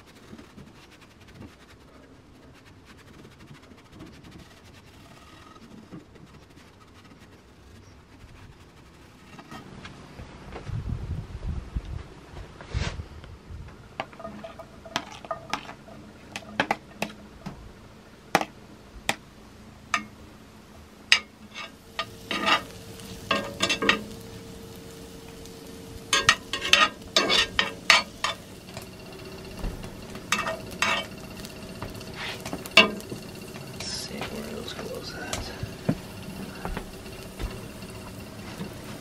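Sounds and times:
peppers sizzling in a skillet: 14.0s - 17.2s, 21.1s - 39.0s
metal spoon scraping a pan: 14.1s - 17.2s, 21.1s - 39.0s.

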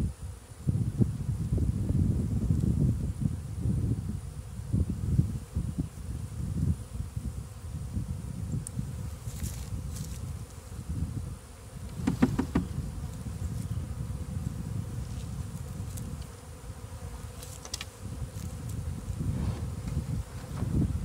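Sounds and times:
honey bees buzzing: 0.2s - 21.0s
knocks: 12.0s - 12.8s.

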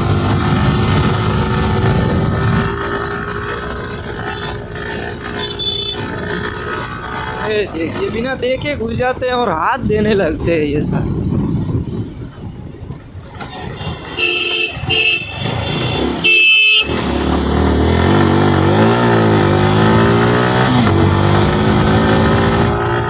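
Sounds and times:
horn toots: 1.0s - 6.8s, 13.4s - 17.2s.

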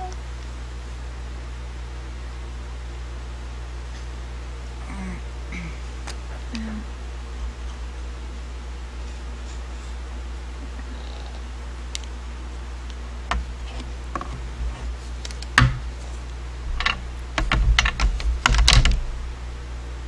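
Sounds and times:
steady low hum: 0.0s - 20.0s
plywood pieces knocking and clattering: 13.3s - 15.9s, 16.7s - 19.2s.

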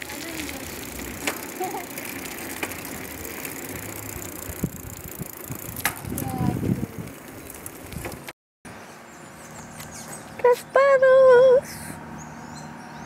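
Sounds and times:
bicycle parts rattling: 0.0s - 8.3s
bicycle tyres rolling on asphalt: 0.0s - 8.4s.

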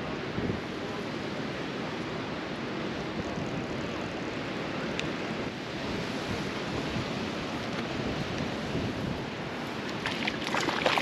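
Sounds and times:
wind buffeting microphone: 5.5s - 11.0s.

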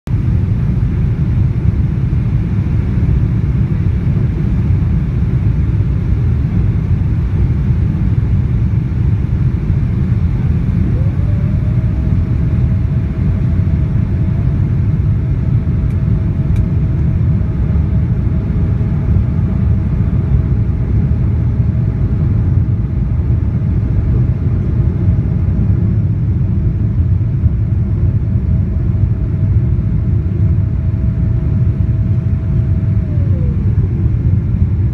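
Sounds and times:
engine and airflow rumble: 0.0s - 34.9s
rising whine: 8.7s - 34.9s.

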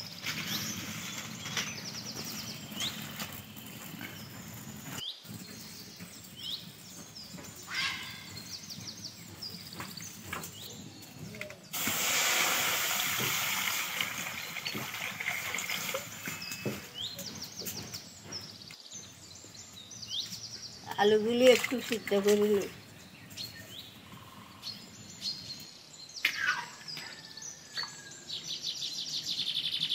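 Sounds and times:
birds chirping: 0.0s - 11.9s, 13.0s - 29.9s
water pouring into metal pan: 11.8s - 16.3s.

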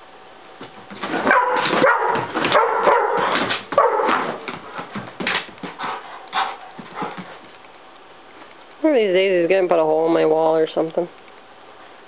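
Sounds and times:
dog barking and whining: 1.0s - 4.8s.

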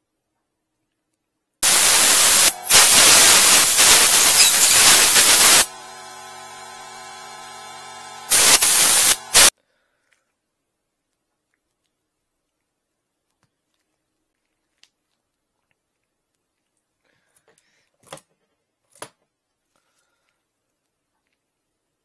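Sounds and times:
air blow gun hissing: 1.6s - 9.5s.

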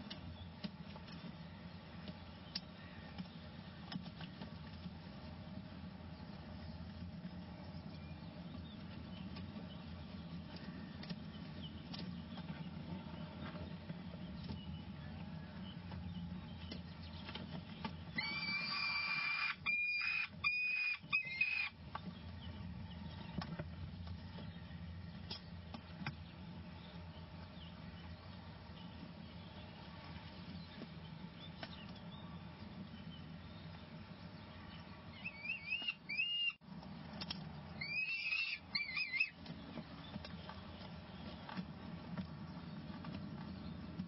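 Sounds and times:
steady low hum: 0.0s - 44.0s
high-pitched falcon call: 18.2s - 21.8s, 35.2s - 36.6s, 37.8s - 39.4s.

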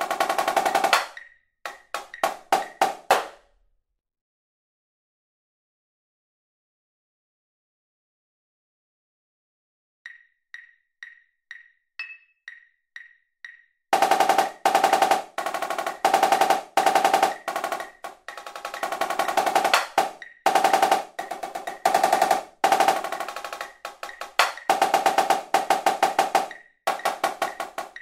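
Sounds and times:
marching snare drum rolls: 0.0s - 3.4s, 14.0s - 28.0s.

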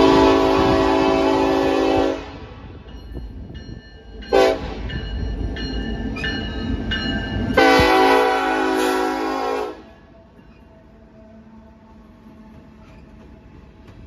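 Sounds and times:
locomotive air horn: 0.0s - 2.6s, 4.3s - 4.8s, 7.6s - 10.1s
locomotive bell ringing: 2.8s - 9.0s.

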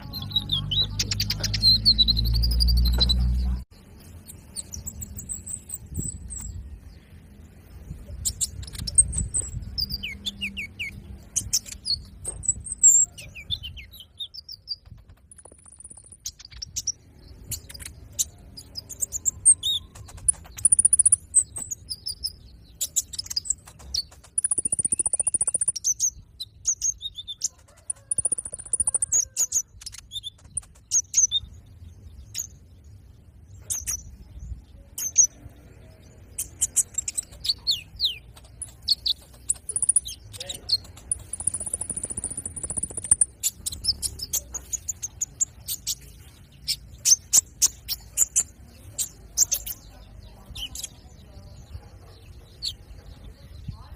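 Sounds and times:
high bird whistles: 0.0s - 3.3s, 18.8s - 31.4s
bird chirping and singing: 0.0s - 53.9s.

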